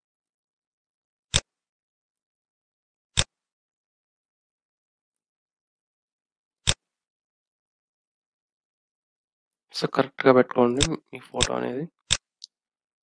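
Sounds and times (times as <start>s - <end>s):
computer mouse clicks: 1.3s - 1.5s.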